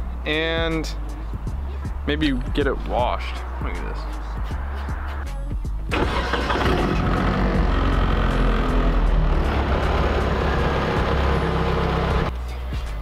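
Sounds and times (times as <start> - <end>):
car engine running: 5.9 - 12.3.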